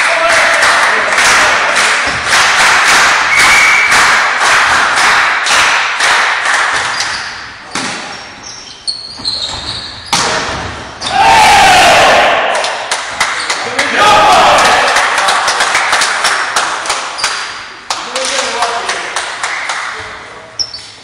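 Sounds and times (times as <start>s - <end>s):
loud celebratory shout: 0.0s - 2.0s, 11.1s - 12.9s, 13.7s - 15.4s
hard volleyball spike: 10.0s - 10.8s
volleyball hits: 10.0s - 11.1s
crowd cheering and shouting: 11.1s - 12.8s, 13.7s - 15.0s.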